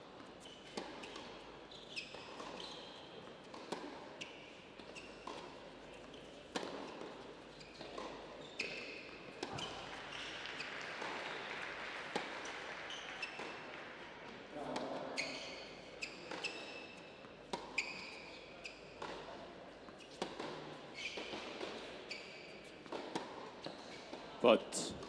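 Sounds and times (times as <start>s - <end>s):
shoes squeaking on court: 0.4s - 11.4s, 12.6s - 13.7s, 14.7s - 24.2s
tennis ball bouncing: 3.5s - 4.0s, 6.5s - 7.2s, 7.8s - 9.8s, 12.0s - 13.6s, 17.4s - 17.8s, 22.9s - 23.8s.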